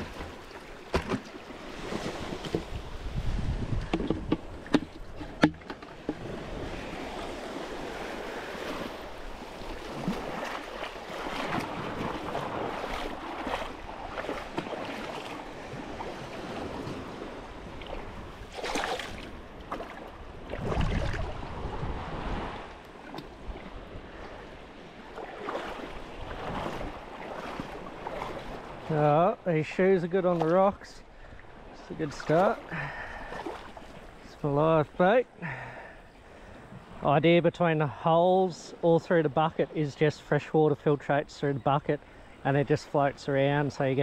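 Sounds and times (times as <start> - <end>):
wind buffeting microphone: 1.6 - 28.8.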